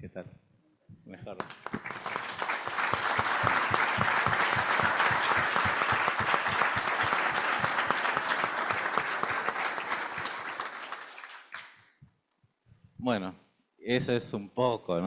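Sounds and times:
audience clapping: 1.4 - 11.9.

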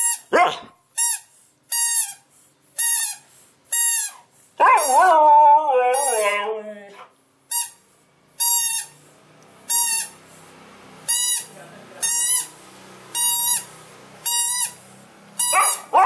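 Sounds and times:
squeaky toy ball squeaks: 0.0 - 0.3, 1.0 - 5.0, 5.8 - 6.5, 7.5 - 7.8, 8.4 - 9.0, 9.7 - 10.2, 11.1 - 14.8, 15.4 - 16.0.

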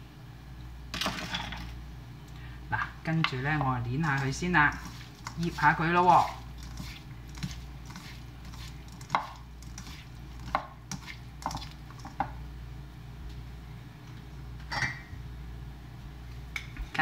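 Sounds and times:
low steady hum: 0.0 - 17.0
hands kneading fish in a bowl: 3.2 - 12.3.

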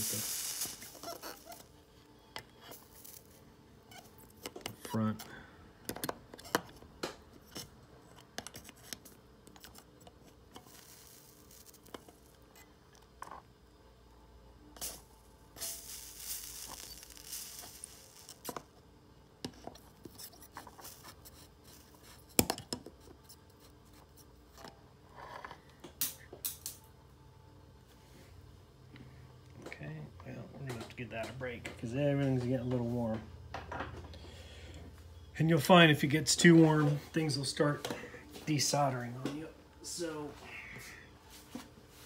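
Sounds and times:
brief hiss: 0.0 - 1.0.

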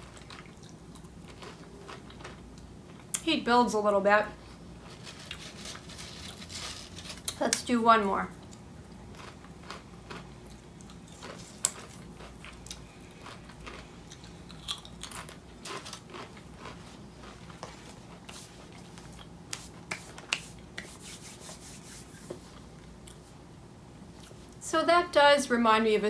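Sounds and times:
chewing crisp crackles: 0.0 - 3.2, 8.3 - 19.4.

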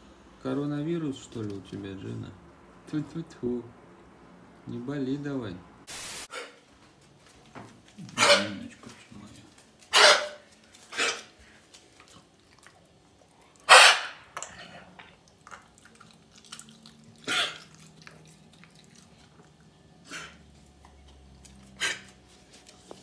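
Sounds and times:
dog sneezing and coughing: 9.9 - 11.4, 13.7 - 14.2, 17.2 - 17.7.

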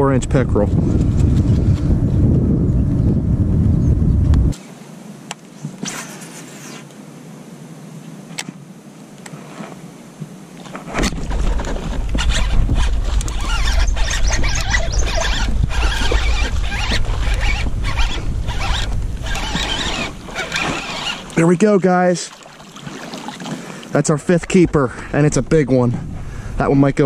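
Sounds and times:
low rumble: 0.4 - 4.6.

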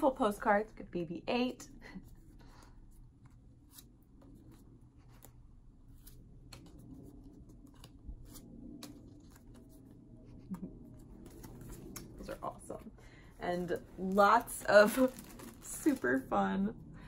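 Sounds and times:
paper postcards rustling: 2.0 - 16.3.

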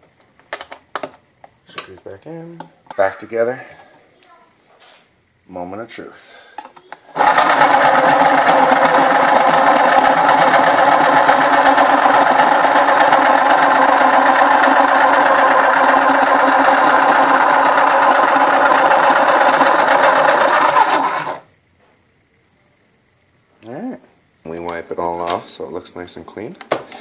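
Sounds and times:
electric pencil sharpener grinding: 7.2 - 21.5.

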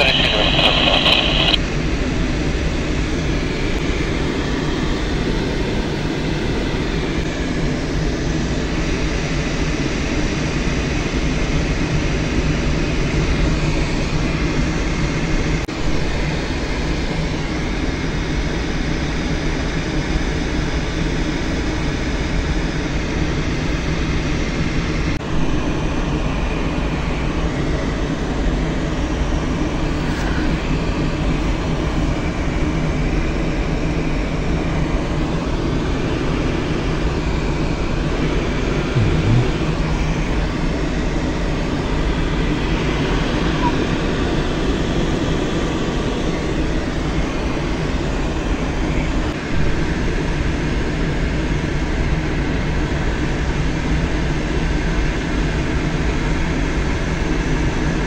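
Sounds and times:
low drone: 0.0 - 1.6, 15.7 - 16.8, 25.2 - 27.6, 38.4 - 44.0, 48.1 - 51.1.

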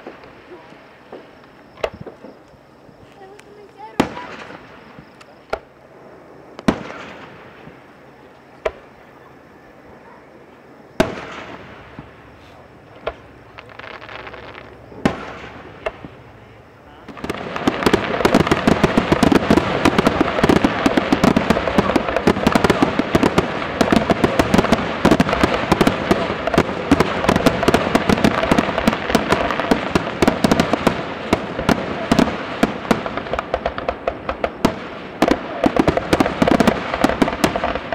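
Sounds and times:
fireworks bursting: 0.0 - 37.9.

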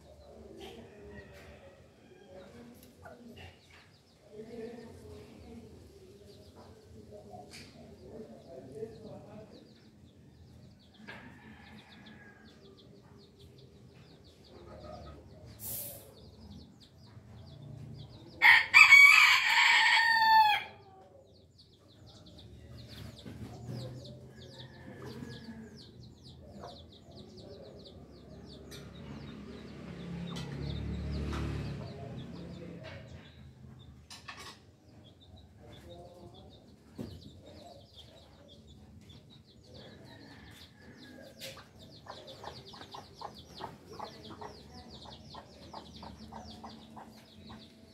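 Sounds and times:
rooster crowing: 18.4 - 20.8.

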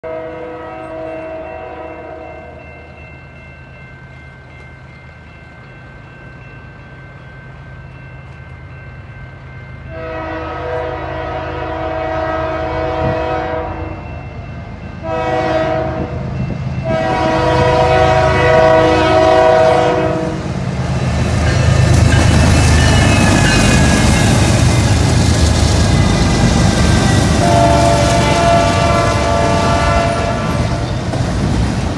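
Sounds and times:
locomotive air horn blasts: 0.0 - 2.4, 9.9 - 14.0, 15.0 - 16.2, 16.8 - 20.5, 27.3 - 30.9
low rumble of locomotives: 0.0 - 31.9.

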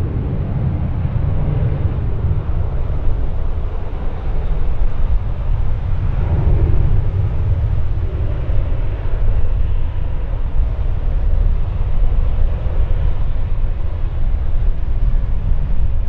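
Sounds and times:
background roar: 0.0 - 16.0
wind buffeting microphone: 0.0 - 16.0.

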